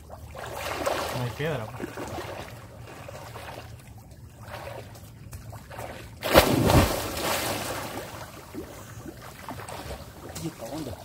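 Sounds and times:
person splashing into water: 0.4 - 2.6, 5.6 - 10.7.

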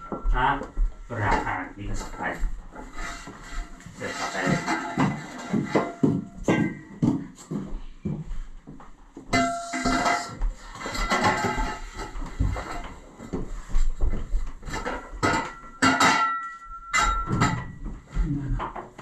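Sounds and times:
steel post clanking: 4.1 - 6.8, 9.3 - 12.2, 15.2 - 17.8
metal tube ringing: 9.3 - 11.8, 15.2 - 17.9.

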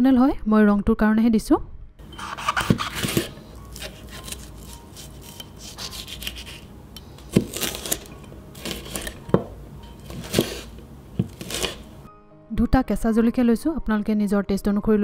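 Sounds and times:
knife slicing chilli: 2.0 - 12.1.

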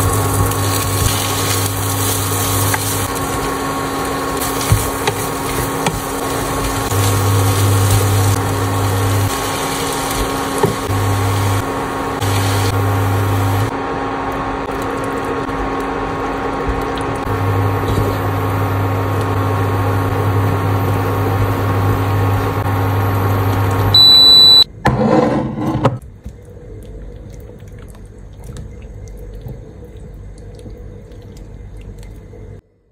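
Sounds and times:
food sizzling in a frying pan: 0.0 - 13.7
steady hum: 0.0 - 24.7
short high beep: 24.0 - 24.7.

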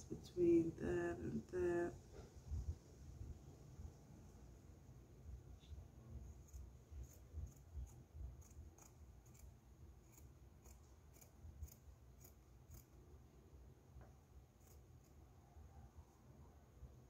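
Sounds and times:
scissors snipping fabric: 6.4 - 13.0.

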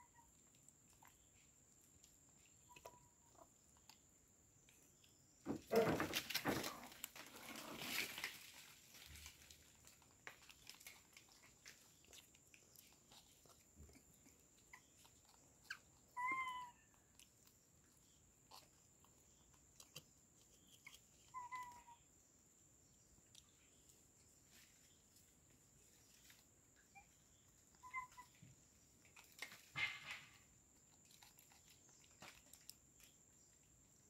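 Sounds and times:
clicks of handling and chewing: 0.0 - 34.0
rustling and crackling: 4.6 - 16.1, 23.4 - 33.6
monkey squeaky calls: 27.8 - 28.4.

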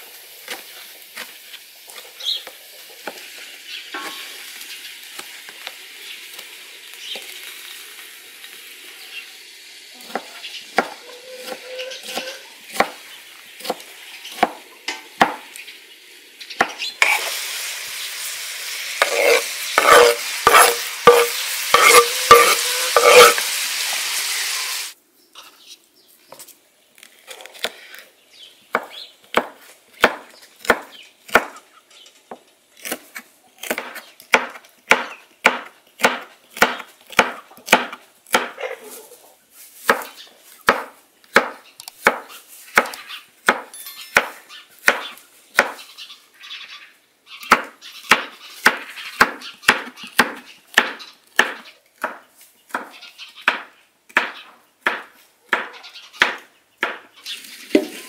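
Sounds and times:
chicken sizzling in oil: 0.0 - 14.5, 15.5 - 25.0
knife chopping on wooden board: 10.1 - 13.0, 19.0 - 23.4, 39.9 - 45.0, 47.5 - 52.9, 53.5 - 57.0.

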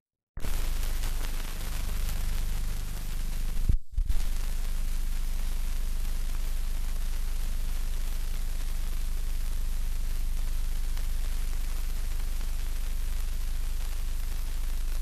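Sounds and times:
film soundtrack hiss and hum: 0.4 - 15.0.

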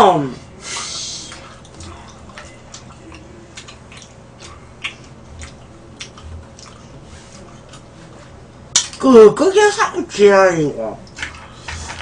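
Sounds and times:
people chewing: 0.6 - 8.5, 11.0 - 12.0.

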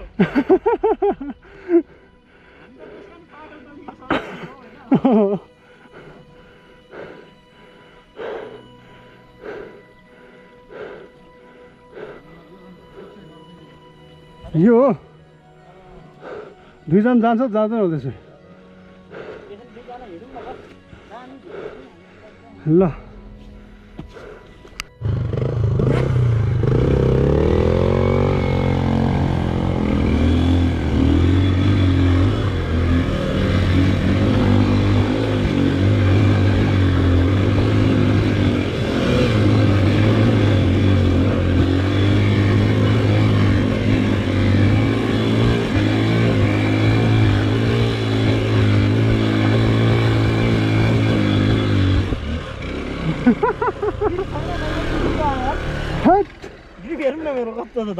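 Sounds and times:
motorcycle engine revving: 25.0 - 57.1.

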